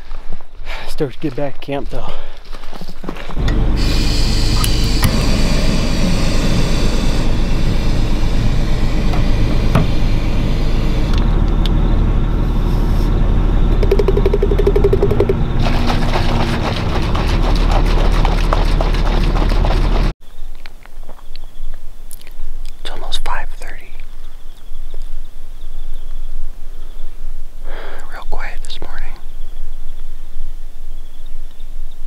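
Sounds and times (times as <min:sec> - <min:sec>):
camping stove hissing: 0:03.4 - 0:08.9
bottle shaken rattling: 0:13.8 - 0:19.8.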